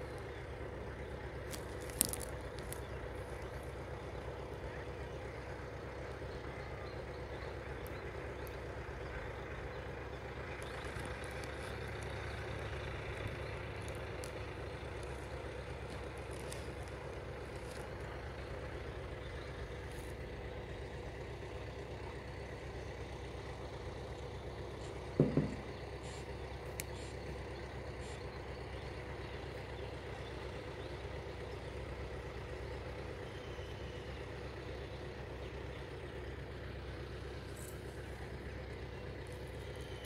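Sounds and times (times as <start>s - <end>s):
low background rumble: 0.0s - 40.0s
short dull thump: 25.2s - 25.7s.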